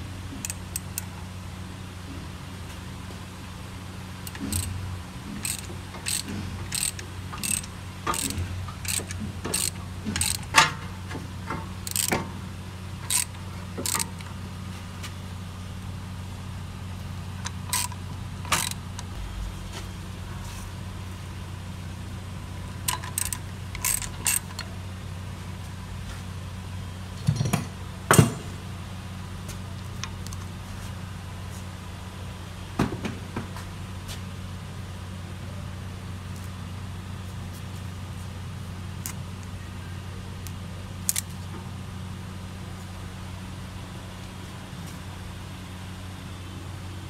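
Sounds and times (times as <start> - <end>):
low hum: 0.0 - 32.5
metal clicks: 0.4 - 1.1, 4.2 - 4.8, 5.4 - 10.8, 11.5 - 12.3, 13.0 - 14.4, 17.4 - 19.1, 22.8 - 24.7
ratchet wrench clicking: 0.4 - 1.1, 4.2 - 10.8, 11.8 - 12.3, 13.0 - 14.4, 17.4 - 19.1, 22.8 - 24.7.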